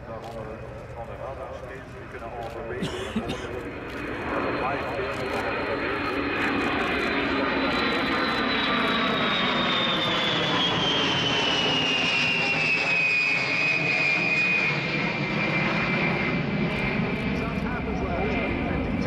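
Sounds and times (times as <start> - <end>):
jet aircraft roar with whine: 0.0 - 19.0.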